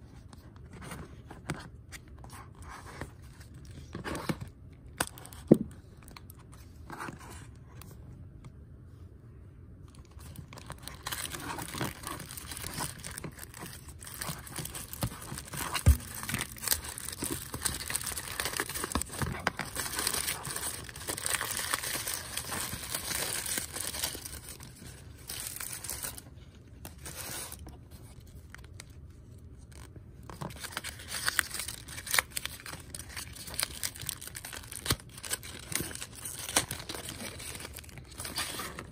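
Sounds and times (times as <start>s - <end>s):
paper and foil wrapper crinkling: 9.9s - 38.9s.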